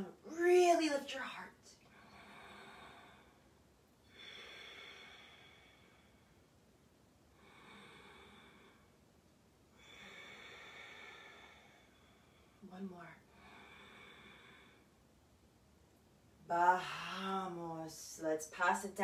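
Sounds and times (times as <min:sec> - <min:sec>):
person breathing slowly: 0:01.9 - 0:06.5, 0:07.3 - 0:09.0, 0:09.8 - 0:12.6, 0:13.2 - 0:15.0.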